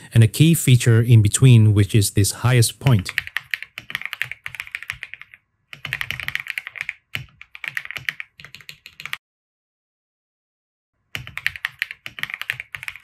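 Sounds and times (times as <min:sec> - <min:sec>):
fast typing on a keyboard: 0:03.0 - 0:09.2, 0:11.2 - 0:13.0.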